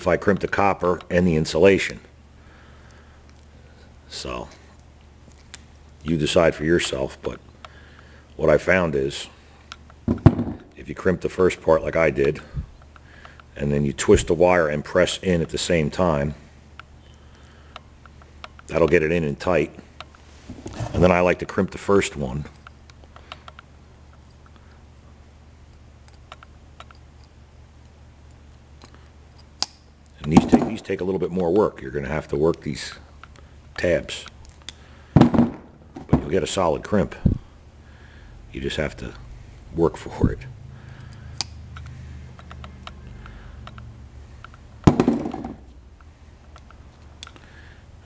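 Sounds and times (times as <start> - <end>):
low steady hum: 0.0 - 48.0
loud knock: 10.1 - 10.7, 35.2 - 36.3, 44.9 - 45.6.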